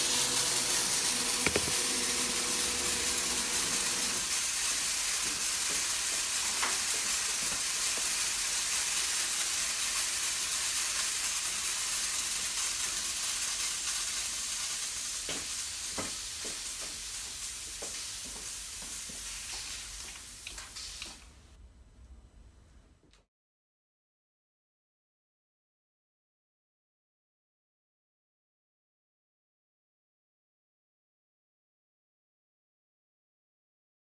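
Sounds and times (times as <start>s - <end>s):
compressed air hissing from spray guns: 0.0s - 21.4s.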